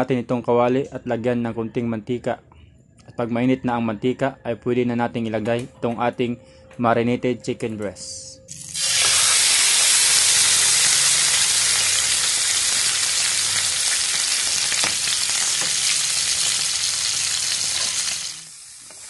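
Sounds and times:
chicken sizzling in hot oil: 8.5s - 19.0s.

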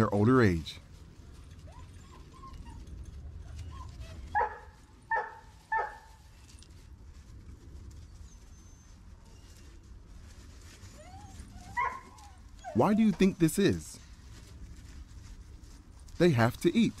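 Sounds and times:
puppies whimpering: 1.6s - 4.3s, 11.0s - 13.4s
puppy yips: 1.6s - 6.1s, 11.0s - 13.2s.

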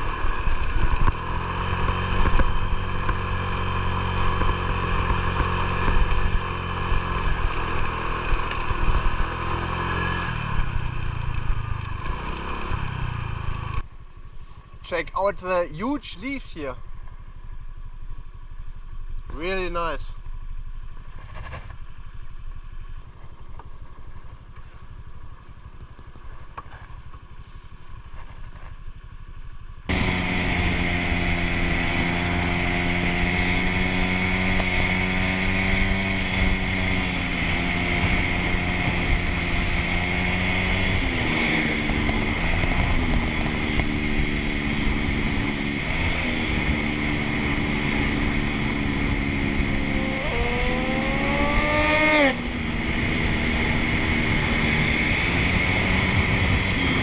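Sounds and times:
scooter engine running: 0.0s - 13.8s, 29.9s - 57.0s
wind and road noise: 0.0s - 57.0s.

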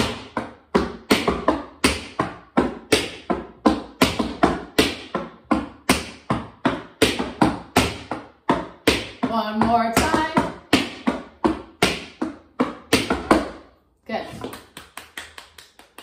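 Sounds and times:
tap shoes striking hard floor: 0.0s - 15.0s.

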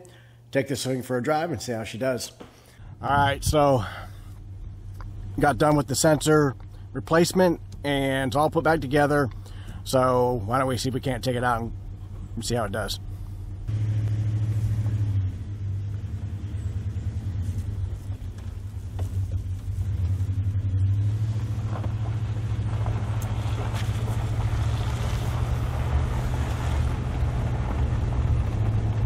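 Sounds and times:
pickup truck engine droning: 2.8s - 29.0s
tyre noise on gravel road: 11.9s - 29.0s.

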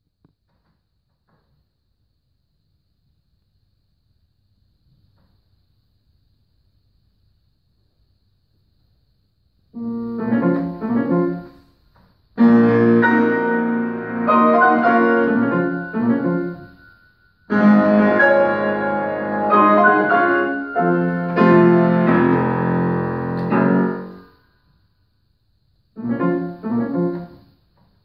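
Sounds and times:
solo grand piano: 9.8s - 11.7s, 12.4s - 16.9s, 17.5s - 24.4s, 26.0s - 27.6s.

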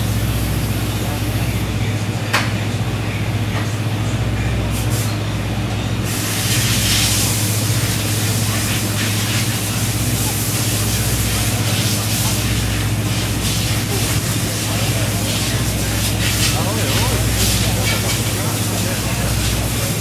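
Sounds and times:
steady low hum: 0.0s - 20.0s
spray hissing onto metal: 6.0s - 20.0s.

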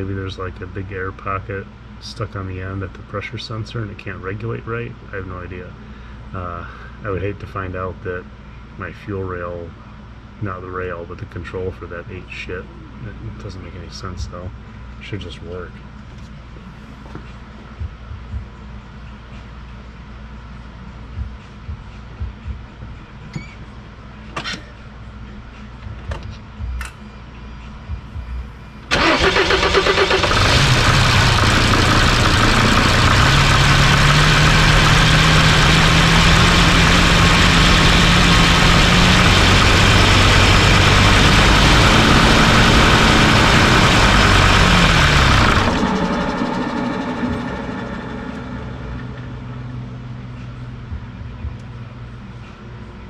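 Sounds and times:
diesel engine cranking and running: 28.9s - 50.4s.

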